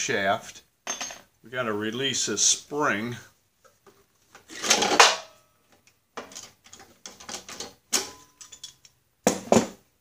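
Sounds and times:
small metal clicks and rattles: 0:05.8 - 0:09.0.

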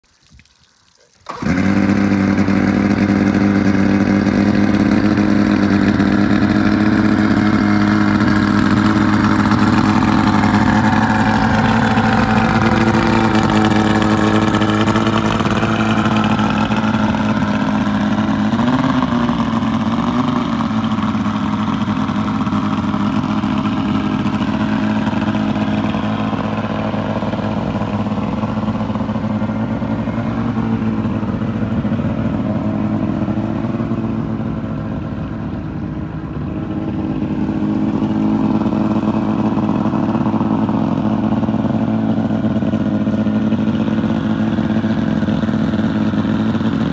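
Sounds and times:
outboard motor idling: 0:00.9 - 0:46.9.

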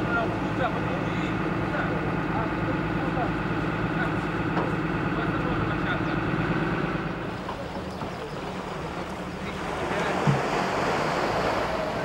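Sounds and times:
sea waves washing: 0:07.2 - 0:12.0.

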